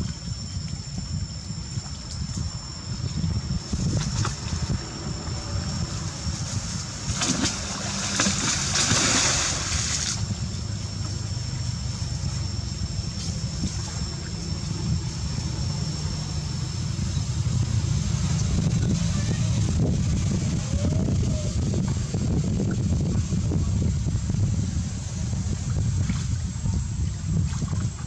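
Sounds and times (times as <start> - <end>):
faint high-pitched whine: 0.0 - 28.0
wind rumble on microphone: 0.0 - 28.0
monkey splashing in water: 7.2 - 10.2.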